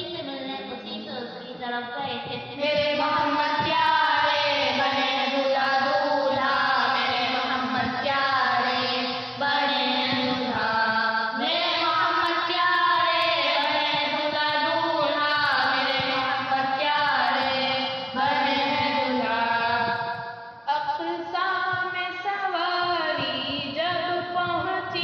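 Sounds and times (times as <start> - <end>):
men singing devotional poem: 2.6 - 20.2.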